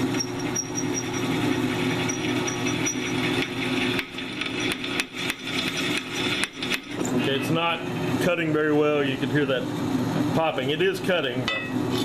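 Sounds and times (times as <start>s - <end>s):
drill bit grinding into steel: 0.0s - 7.4s
drill press motor hum: 0.0s - 8.3s.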